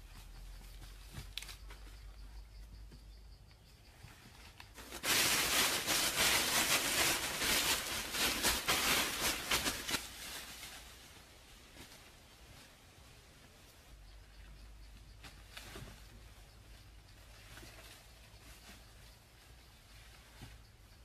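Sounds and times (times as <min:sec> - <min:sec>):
leafy branches rustling: 0:04.0 - 0:21.0.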